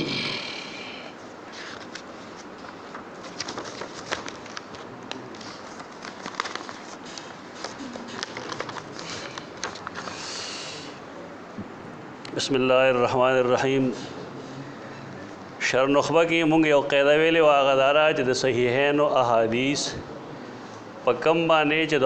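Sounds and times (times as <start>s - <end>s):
scattered clicks and crackles: 1.8s - 10.1s.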